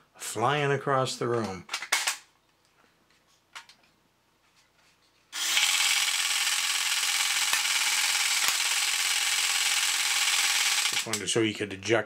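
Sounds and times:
faint clicks of toy handling: 1.3s - 5.2s
toy car electric motor and gears: 5.4s - 11.2s
toy machine-gun action: 5.4s - 11.3s.

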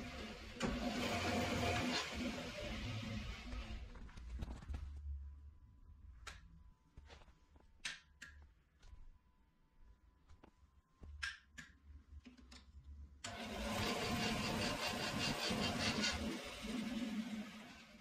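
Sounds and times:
bandsaw running: 0.0s - 3.8s, 13.3s - 18.0s.

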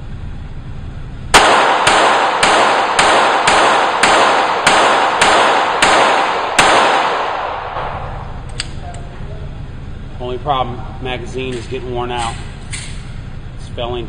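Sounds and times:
pistol shots echoing: 1.3s - 8.2s.

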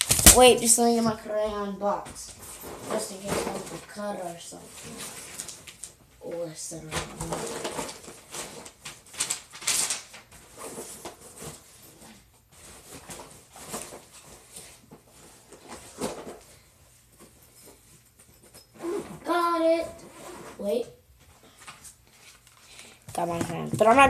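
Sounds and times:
rummaging through crayons: 6.9s - 16.6s.

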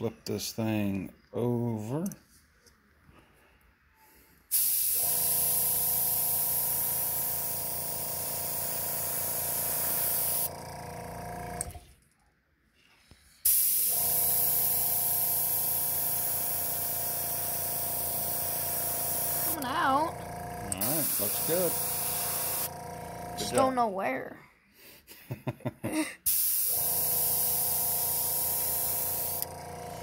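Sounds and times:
airbrush air hiss: 4.5s - 10.5s, 13.3s - 19.6s, 20.8s - 22.7s, 26.3s - 29.5s.

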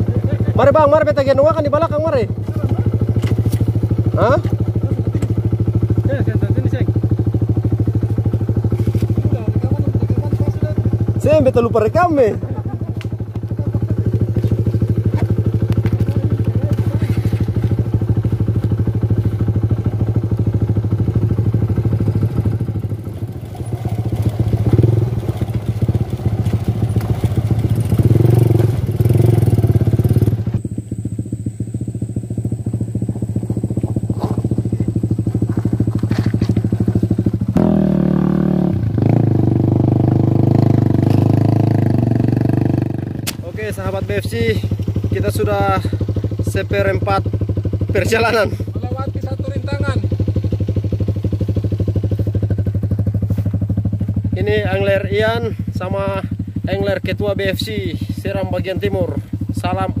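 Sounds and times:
small motorcycle engine running: 0.0s - 60.0s
bike rattling over stones: 35.2s - 37.2s.

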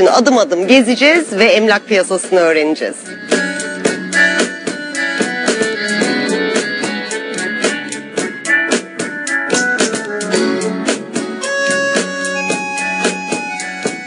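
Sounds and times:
background music with drum beat: 3.0s - 14.0s.

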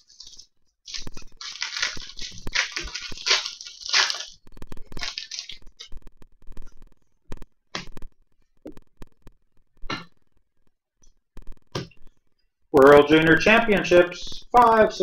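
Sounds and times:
card pack wrapper crinkling: 0.0s - 5.9s.

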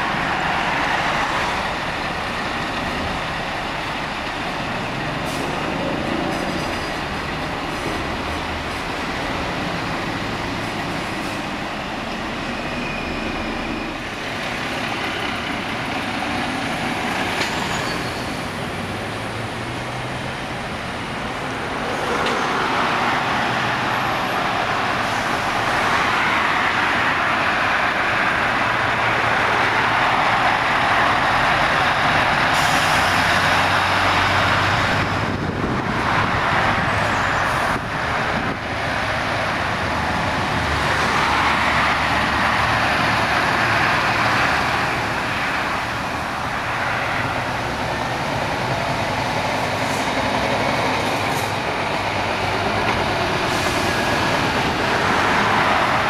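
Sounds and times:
lorry diesel engines: 0.0s - 56.0s
tyre hiss on road: 49.4s - 51.7s, 53.3s - 54.3s.

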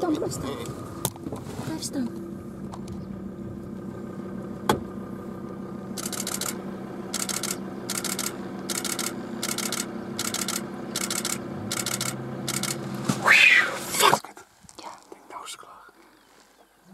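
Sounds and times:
car engine idling: 0.0s - 14.0s
camera shutters firing: 6.0s - 6.6s, 7.2s - 12.8s
sharp click: 6.0s - 6.6s, 7.2s - 12.8s.

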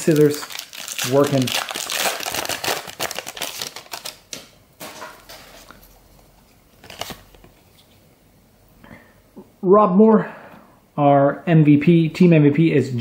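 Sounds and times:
foil wrapper crinkling: 0.0s - 4.4s.

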